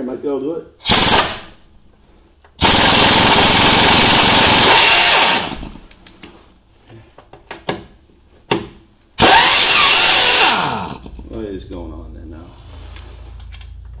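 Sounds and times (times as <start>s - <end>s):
impact wrench hammering: 2.6s - 5.8s, 8.5s - 11.2s.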